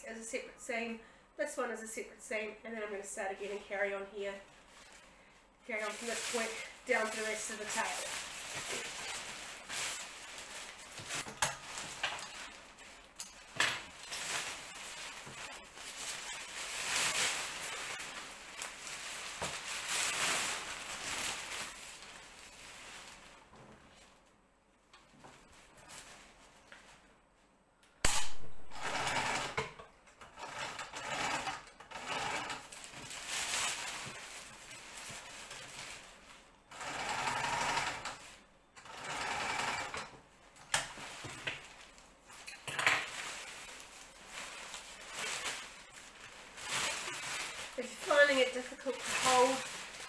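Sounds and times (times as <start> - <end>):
nylon fabric rustling: 3.4 - 24.4, 32.4 - 37.0, 40.9 - 50.0
sewing machine stitching: 28.7 - 29.6, 30.3 - 32.7, 36.7 - 38.2, 38.8 - 40.1.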